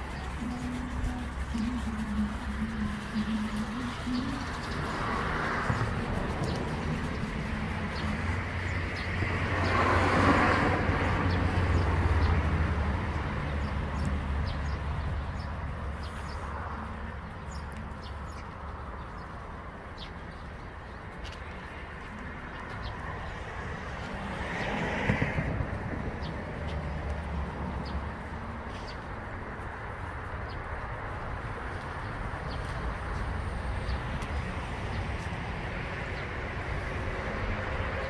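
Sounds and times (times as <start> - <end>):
low traffic rumble: 0.0 - 38.0
vehicle passing: 0.0 - 38.0
small birds chirping: 13.4 - 23.4.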